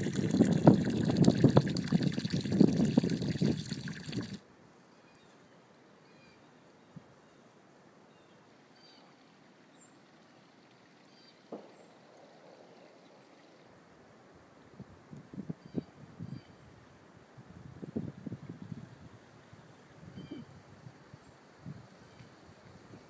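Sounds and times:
strong wind buffeting microphone: 0.0 - 4.4, 17.4 - 19.2
faint trickling stream water: 0.0 - 5.8, 7.4 - 23.0.

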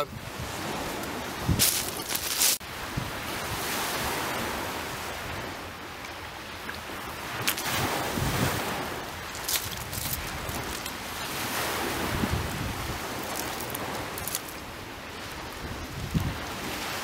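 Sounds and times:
wind on microphone: 0.0 - 5.8, 6.8 - 17.0
waves washing onto shingle: 0.0 - 17.0.

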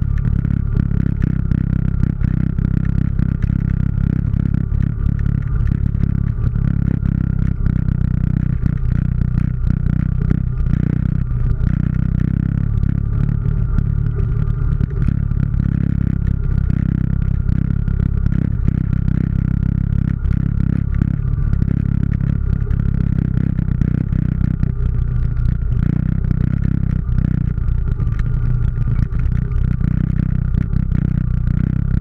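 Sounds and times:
atv engine running: 0.0 - 32.0.

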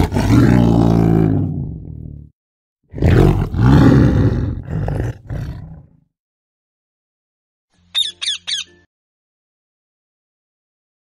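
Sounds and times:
tiger roaring: 0.0 - 2.3, 2.9 - 6.0
parrot squawking: 7.9 - 8.7.

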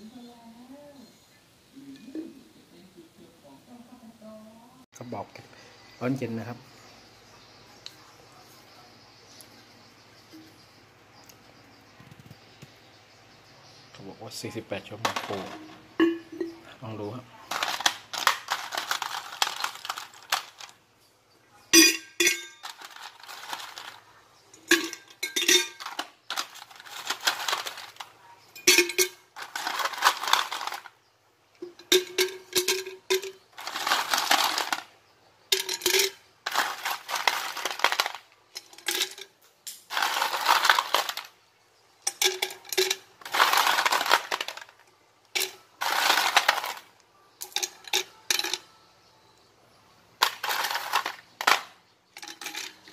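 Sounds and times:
ice cubes clinking in metal jar: 14.4 - 20.8, 21.8 - 30.9, 31.6 - 34.9, 35.5 - 41.3, 42.0 - 48.7, 50.2 - 52.9.

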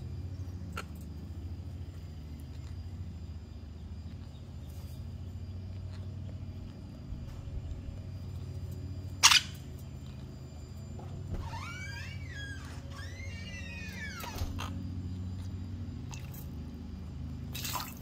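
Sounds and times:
low hum: 0.0 - 18.0
parrots calling: 9.1 - 9.8, 11.3 - 15.5.

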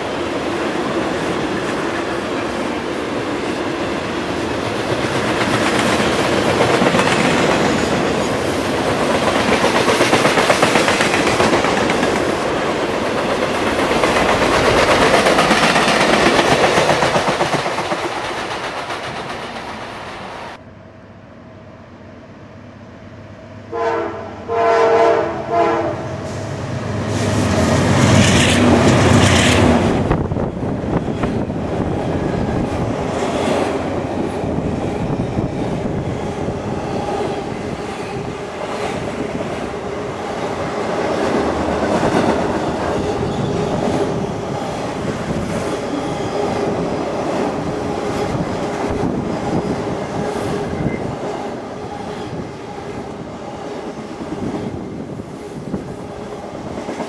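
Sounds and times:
freight train rolling rumble: 0.0 - 20.6, 23.8 - 57.0
locomotive horn blasts: 23.7 - 26.2.

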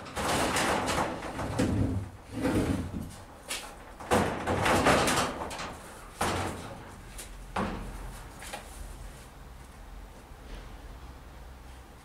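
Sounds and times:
metal garage door knocking: 0.0 - 8.2
garage door scraping rattle: 0.0 - 8.4.

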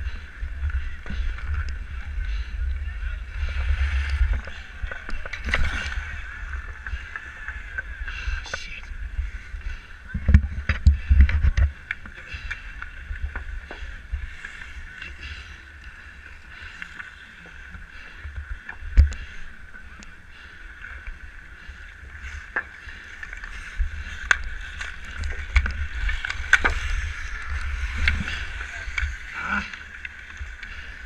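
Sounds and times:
low rumble: 0.0 - 16.7.

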